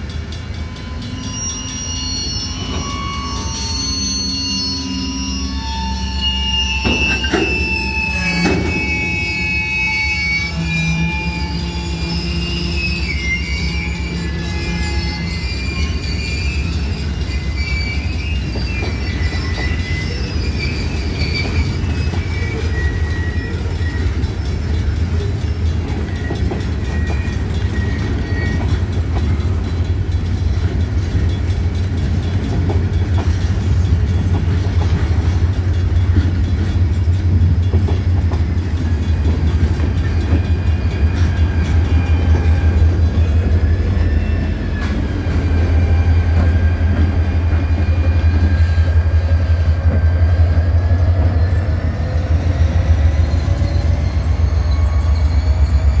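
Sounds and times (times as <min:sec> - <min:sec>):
diesel locomotive engine drone: 0:00.0 - 0:56.0
train wheels clicking over rail joints: 0:06.8 - 0:08.9, 0:15.7 - 0:56.0.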